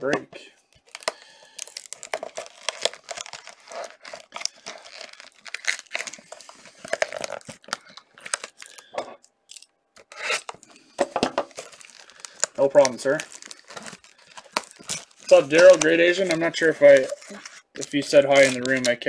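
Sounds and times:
wrapper crinkling: 0:00.7 - 0:08.9, 0:09.5 - 0:19.0
cardboard box tearing: 0:01.7 - 0:07.7, 0:12.7 - 0:18.9.

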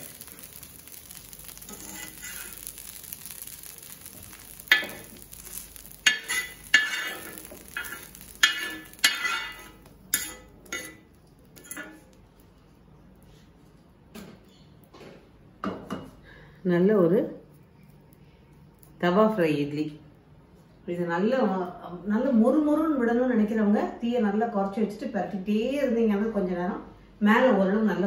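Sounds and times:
skimmer scraping on griddle: 0:00.0 - 0:12.2
oil sizzling: 0:00.0 - 0:13.4.

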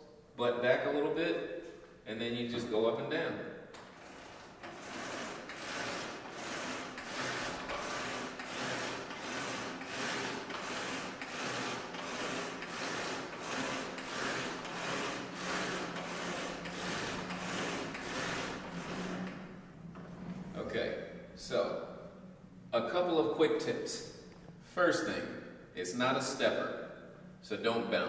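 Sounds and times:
climbing machine rasping swish: 0:03.8 - 0:20.6.

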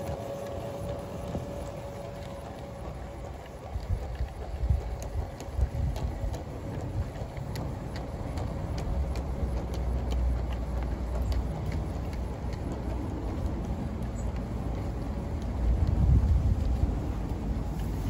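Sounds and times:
model train hum: 0:00.0 - 0:18.0
wind rumble on microphone: 0:00.0 - 0:18.0
light clicks of model train: 0:07.3 - 0:18.0.

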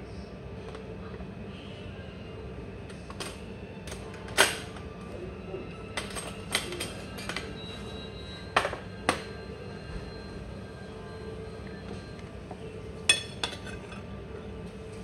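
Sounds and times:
steady background hum: 0:00.0 - 0:15.0
tableware clinking: 0:06.0 - 0:07.6, 0:08.5 - 0:09.4, 0:13.0 - 0:14.2.

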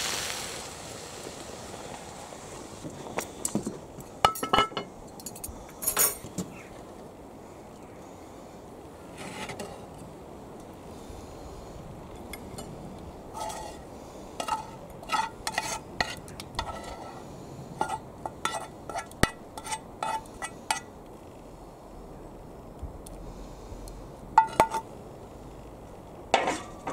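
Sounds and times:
metal utensil scraping frying pan: 0:13.3 - 0:13.8, 0:14.4 - 0:17.2, 0:17.8 - 0:20.9.

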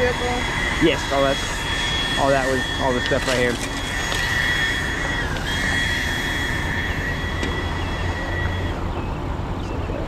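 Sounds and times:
heavy engine rumbling: 0:00.0 - 0:10.0
high steady whine: 0:00.0 - 0:10.0.

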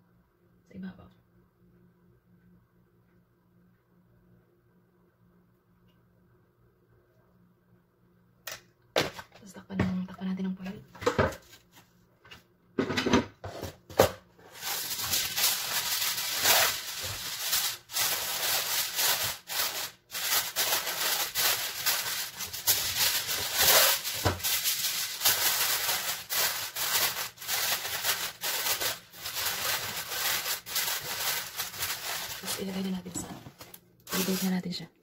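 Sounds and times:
kitchen foil crinkling: 0:14.4 - 0:34.8.

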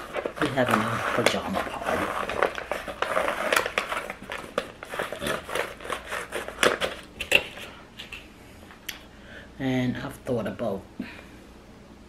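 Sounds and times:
plastic lid crinkling on foil pan: 0:00.0 - 0:07.8.

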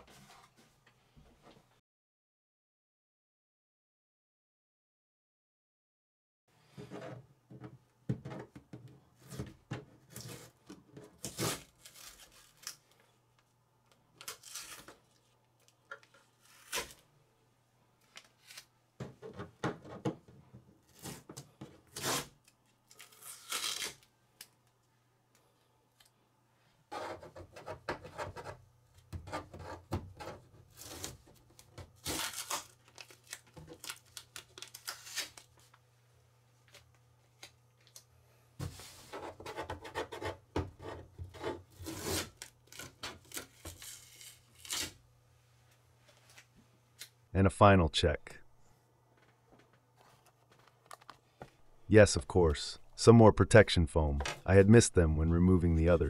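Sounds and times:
tape being peeled off: 0:11.2 - 0:13.0, 0:14.2 - 0:17.0, 0:18.0 - 0:18.7, 0:21.9 - 0:24.6, 0:30.7 - 0:35.8, 0:41.8 - 0:45.0.

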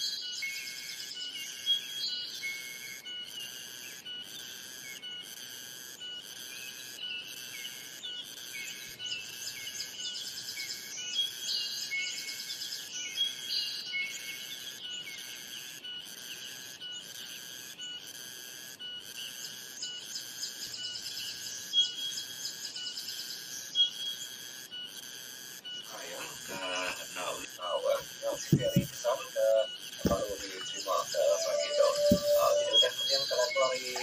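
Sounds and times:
birds singing and chirping: 0:06.6 - 0:15.2, 0:25.7 - 0:34.0
pulsing high tone: 0:25.9 - 0:34.0.

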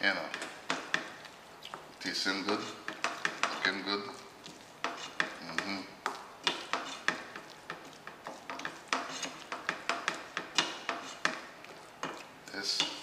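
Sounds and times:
spoon stirring thick curry: 0:00.1 - 0:13.0
spoon knocking against metal pan: 0:02.5 - 0:03.6, 0:04.8 - 0:11.4.

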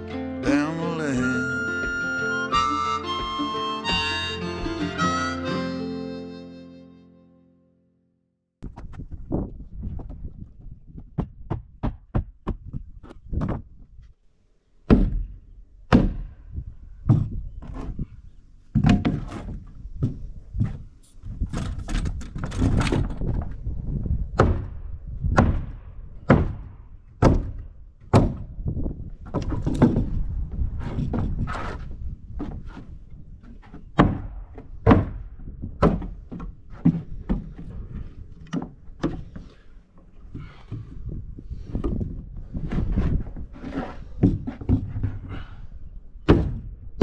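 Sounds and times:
sledgehammer thudding on wood: 0:14.9 - 0:16.4, 0:17.0 - 0:18.0, 0:18.7 - 0:20.8, 0:24.4 - 0:28.5, 0:33.9 - 0:37.6, 0:46.2 - 0:47.0.

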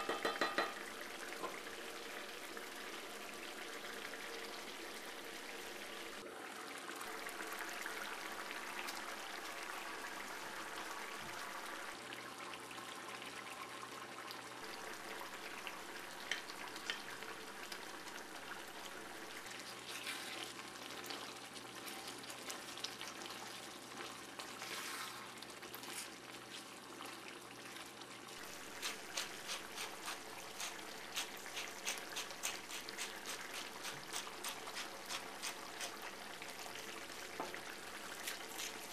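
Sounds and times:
curry bubbling in a pan: 0:00.1 - 0:38.9.

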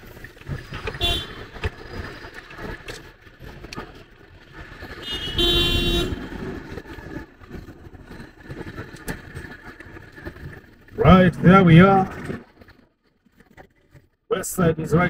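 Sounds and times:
road and engine noise: 0:00.0 - 0:15.0
vehicle horn blast: 0:00.9 - 0:01.5, 0:05.0 - 0:06.3.

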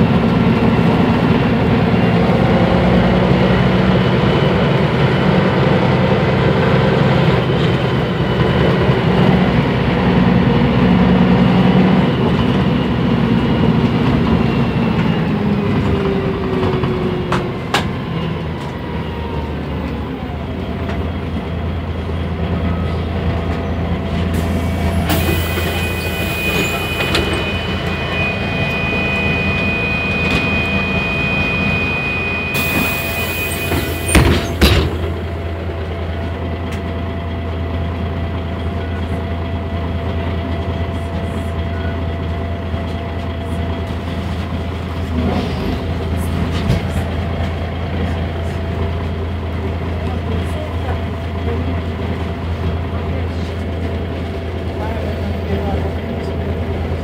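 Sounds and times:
bus diesel engine humming: 0:00.0 - 0:57.0
steady high tone: 0:24.5 - 0:34.5.

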